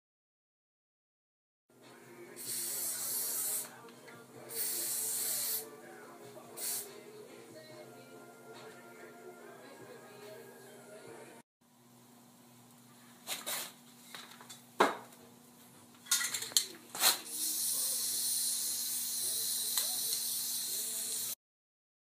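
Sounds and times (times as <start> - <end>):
spray paint can hissing: 2.4 - 3.7, 4.5 - 5.6, 6.6 - 6.9, 17.0 - 21.4.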